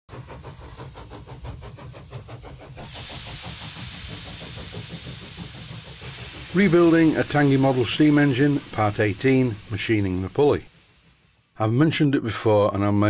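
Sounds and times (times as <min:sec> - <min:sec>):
steam engine mechanical clatter: 0:00.1 - 0:12.0
steam hissing: 0:00.1 - 0:12.2
low rumble: 0:02.8 - 0:11.8.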